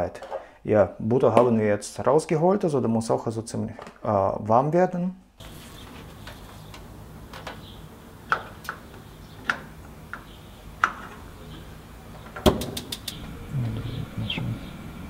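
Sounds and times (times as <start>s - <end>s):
gas burner ignition clicks: 12.3s - 13.3s.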